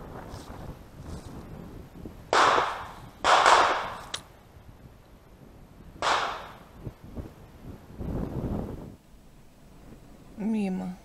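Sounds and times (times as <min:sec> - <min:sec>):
shotgun shots: 0:02.3 - 0:04.2, 0:06.0 - 0:06.7.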